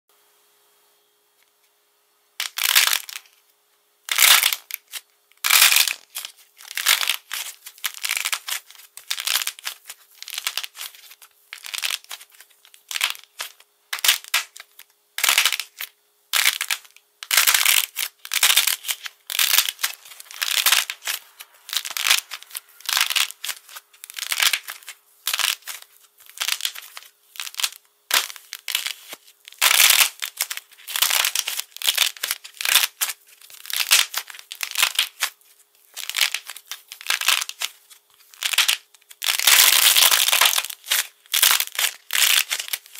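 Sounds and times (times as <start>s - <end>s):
brittle coating cracking: 4.1s - 42.9s.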